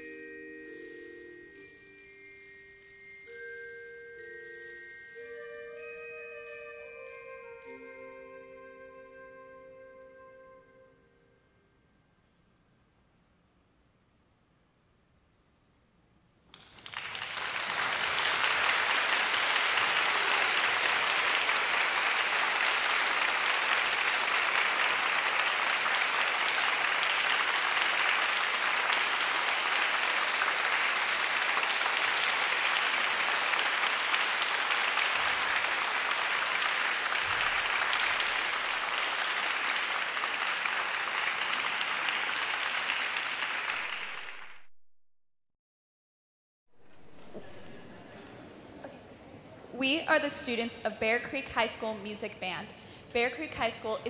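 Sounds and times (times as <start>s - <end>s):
audience applauding: 16.6s - 44.7s.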